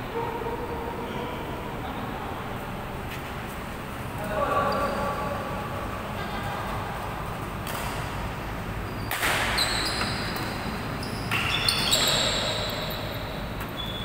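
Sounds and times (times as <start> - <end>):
shoes squeaking on court: 4.5 - 5.2, 8.8 - 14.0
racket hitting shuttlecock: 7.3 - 8.4, 9.1 - 13.7.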